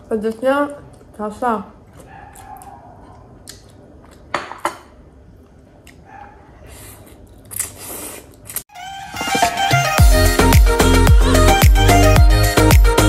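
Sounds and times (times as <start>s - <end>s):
music: 8.7s - 13.0s.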